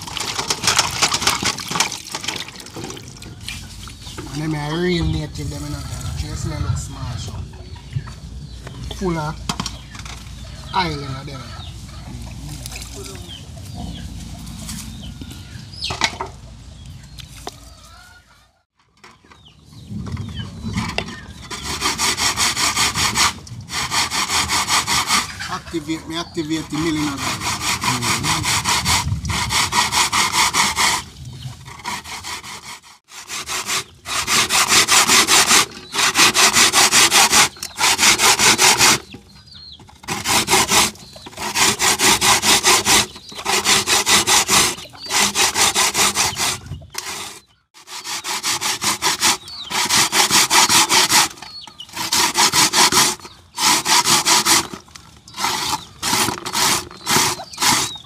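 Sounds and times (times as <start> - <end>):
food being grated by hand: 21.5 - 25.5, 26.5 - 31.1, 31.7 - 39.1, 40.0 - 54.8, 55.4 - 58.0.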